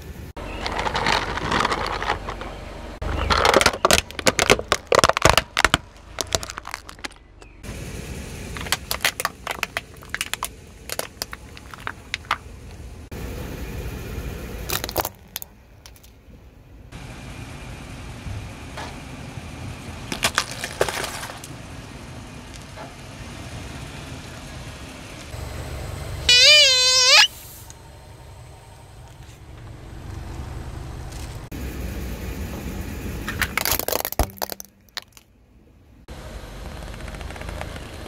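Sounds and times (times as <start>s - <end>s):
car low rumble: 0.0s - 38.0s
brittle objects cracking under tyre: 0.5s - 7.6s, 8.5s - 12.8s, 14.6s - 16.2s, 20.1s - 21.6s, 33.3s - 35.3s.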